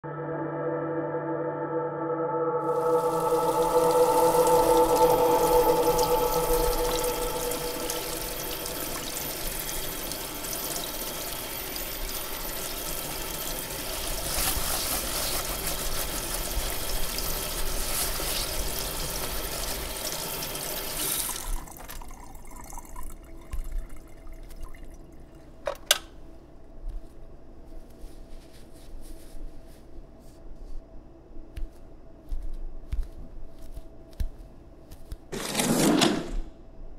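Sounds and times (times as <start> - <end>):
tap water running into sink: 3.0 - 25.8
sponge scrubbing plastic colander: 11.9 - 19.9.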